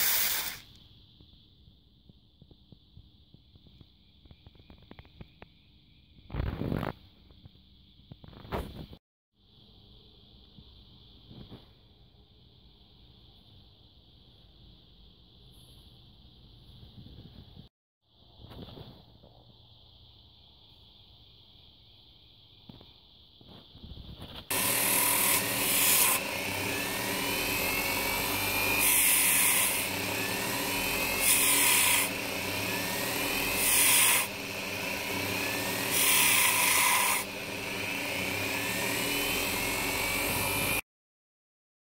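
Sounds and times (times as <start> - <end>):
bench grinder running: 0.0 - 0.6, 24.5 - 40.8
metal grinding bursts: 24.5 - 40.8.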